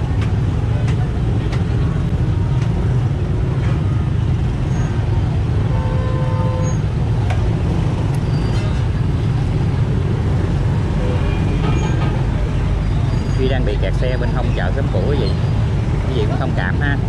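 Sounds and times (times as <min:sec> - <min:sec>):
motorbike traffic rumble: 0:00.0 - 0:17.0.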